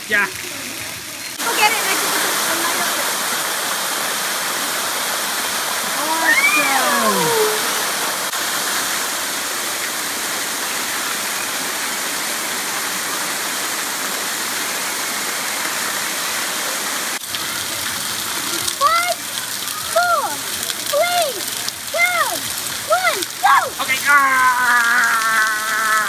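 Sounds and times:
rushing falling water: 0:00.0 - 0:26.0
child squealing: 0:06.0 - 0:07.9.

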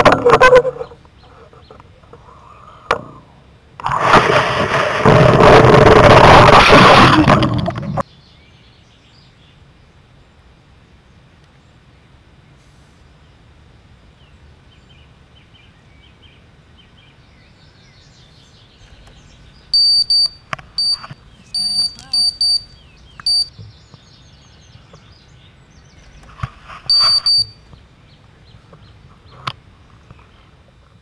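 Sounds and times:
faint birdsong: 0:00.4 - 0:03.6, 0:07.9 - 0:31.0
high-pitched electronic beeps: 0:19.7 - 0:23.5, 0:26.9 - 0:27.6.

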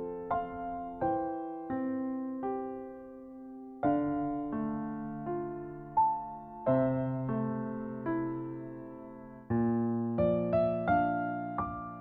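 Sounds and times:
slow gentle piano chords: 0:00.0 - 0:12.0.

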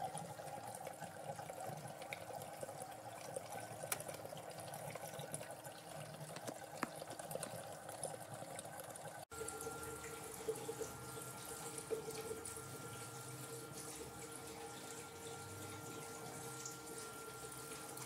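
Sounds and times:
water trickling through channel: 0:00.0 - 0:18.0
water drips: 0:00.1 - 0:18.0
faint steady tone: 0:09.3 - 0:18.0.

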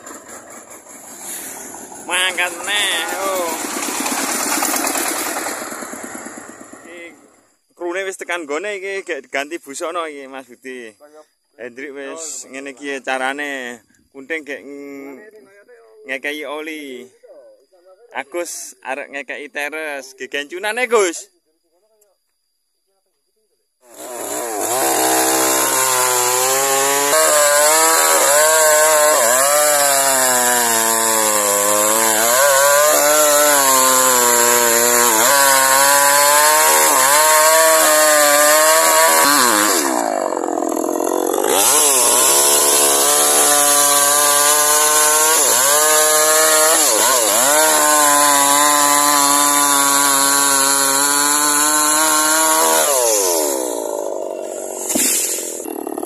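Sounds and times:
chainsaw cutting wood: 0:00.0 - 0:07.0, 0:23.8 - 0:56.0.

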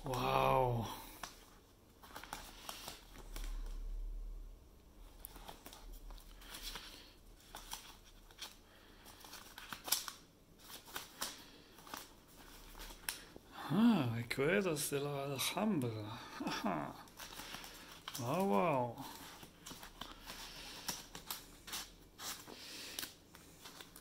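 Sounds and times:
paper pages rustling: 0:01.1 - 0:03.8, 0:05.0 - 0:13.4, 0:16.5 - 0:24.0.

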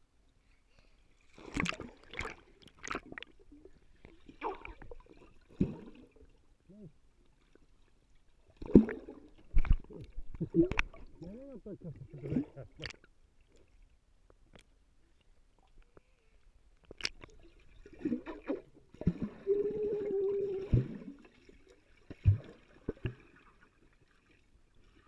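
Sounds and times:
underwater bubbling and gurgles: 0:01.2 - 0:14.0, 0:16.8 - 0:25.0
child humming underwater: 0:19.3 - 0:21.1.

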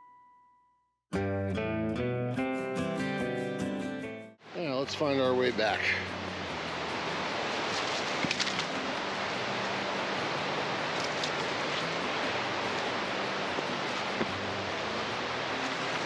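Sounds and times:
river rushing: 0:04.4 - 0:16.0.

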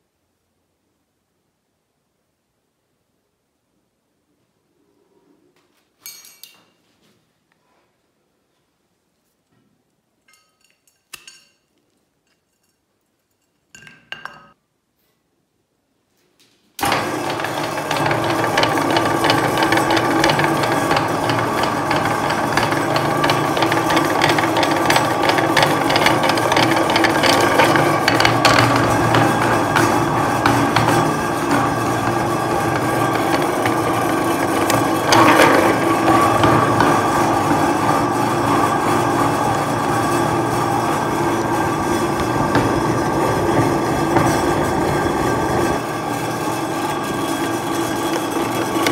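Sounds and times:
meat grinder motor grinding: 0:16.8 - 0:48.9.

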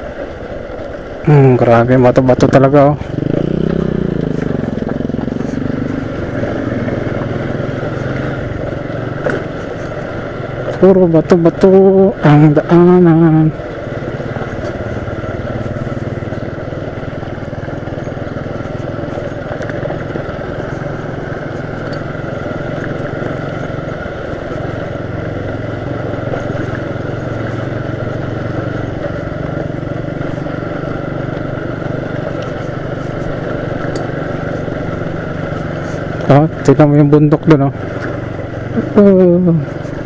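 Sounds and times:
motorcycle engine running: 0:00.0 - 0:40.0
clicks and rattles over stones: 0:17.8 - 0:24.8.

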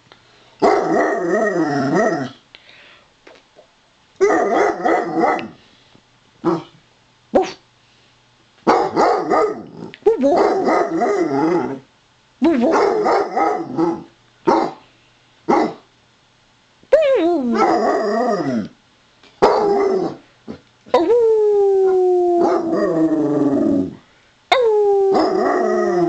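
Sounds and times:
dog bark-howling: 0:00.6 - 0:01.3, 0:04.2 - 0:05.6, 0:08.7 - 0:09.7, 0:10.3 - 0:11.7, 0:12.6 - 0:14.8, 0:15.5 - 0:15.8, 0:17.5 - 0:18.5, 0:19.4 - 0:20.2, 0:22.4 - 0:23.2.

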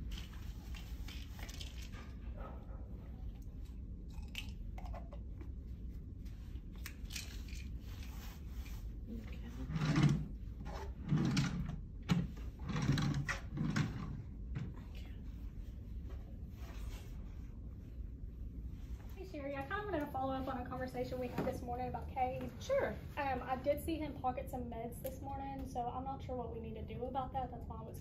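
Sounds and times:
clicks and rustles of handling: 0:00.0 - 0:02.3.

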